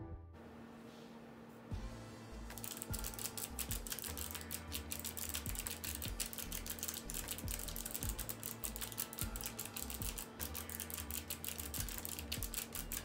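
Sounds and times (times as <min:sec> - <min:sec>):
background music: 0:01.7 - 0:13.0
mechanical keyboard typing: 0:02.5 - 0:13.0.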